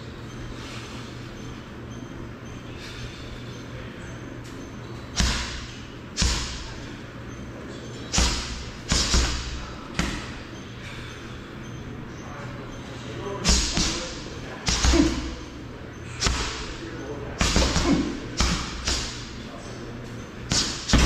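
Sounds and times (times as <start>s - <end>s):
punches smacking heavy bag: 5.2s - 6.8s, 8.1s - 10.4s, 13.4s - 15.4s, 16.2s - 16.7s, 17.4s - 19.3s, 20.5s - 21.0s.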